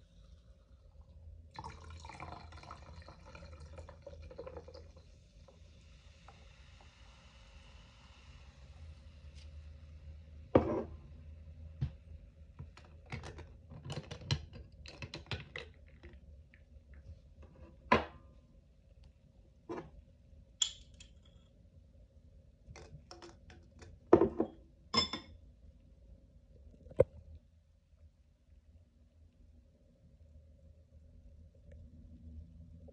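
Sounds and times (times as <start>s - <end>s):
glass and ice clinking: 20.6s - 21.3s, 24.2s - 25.3s.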